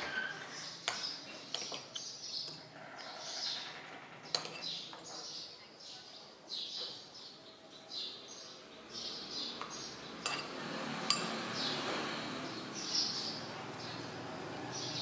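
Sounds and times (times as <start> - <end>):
metal spoon clinking ceramic bowl: 4.3 - 5.1, 10.2 - 11.4
small bird chirping: 11.2 - 14.1.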